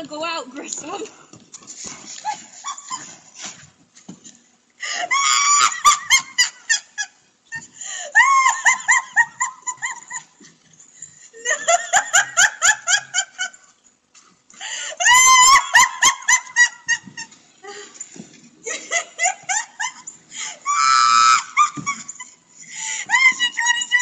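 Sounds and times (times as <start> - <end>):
woman laughing: 2.2 - 3.2, 4.9 - 10.5, 11.3 - 13.6, 14.9 - 18.0, 18.6 - 24.0.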